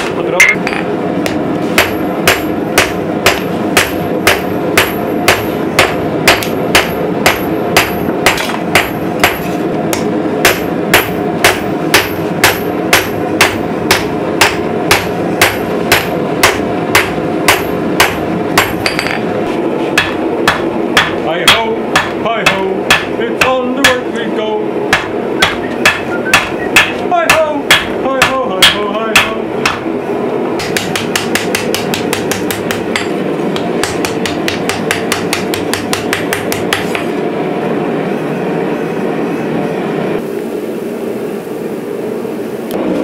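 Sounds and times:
steady background rush: 0.0s - 43.0s
hammer blows on steel anvil: 24.9s - 29.8s.

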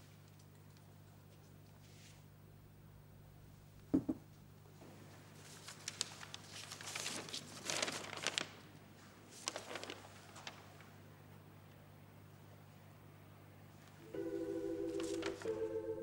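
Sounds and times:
soft knock: 3.9s - 4.2s
paper crinkling: 5.3s - 10.9s, 14.8s - 15.7s.

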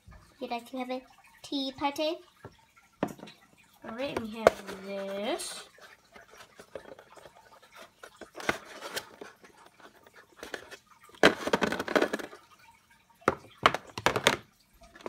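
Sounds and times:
plastic toys clattering on tray: 3.0s - 12.4s, 13.2s - 15.0s
close handling noise: 5.9s - 12.4s.

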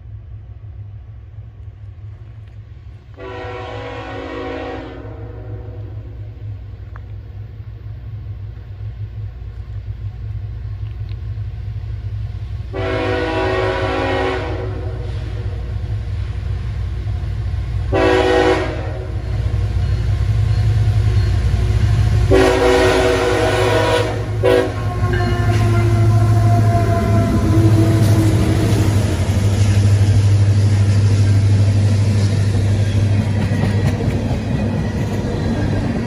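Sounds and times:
locomotive air horn blasts: 3.1s - 6.2s, 12.7s - 15.7s, 17.9s - 19.2s, 22.3s - 29.0s
diesel engine rumble: 18.8s - 36.0s.

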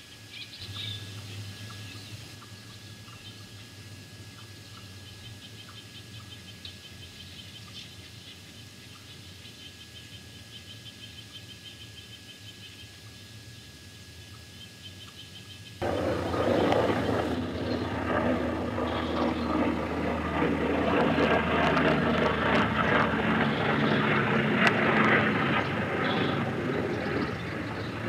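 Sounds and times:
faint steady hum: 0.0s - 28.0s
thin whine: 0.0s - 28.0s
loud rushing rumble: 15.8s - 20.2s.

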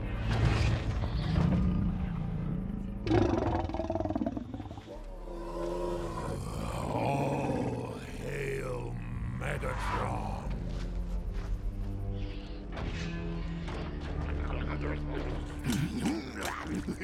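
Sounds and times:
deep mechanical robot growl: 1.5s - 8.8s.

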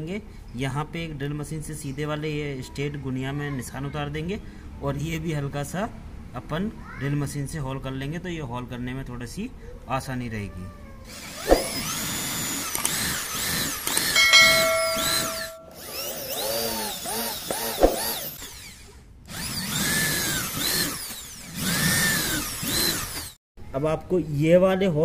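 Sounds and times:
electric drill boring into wood: 11.1s - 14.2s, 15.8s - 23.4s.

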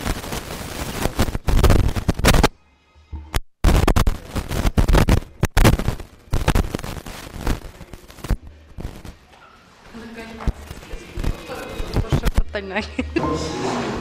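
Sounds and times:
microphone handling noise: 0.0s - 2.5s, 3.2s - 9.2s, 10.4s - 12.5s.

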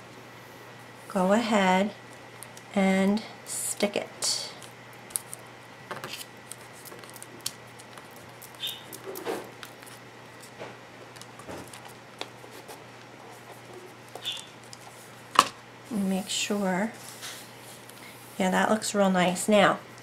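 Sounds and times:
paper crinkling and rustling: 4.6s - 15.1s.

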